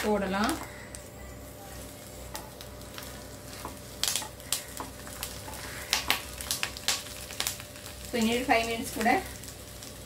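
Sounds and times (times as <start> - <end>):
oil sizzling in a pan: 0.0 - 10.0.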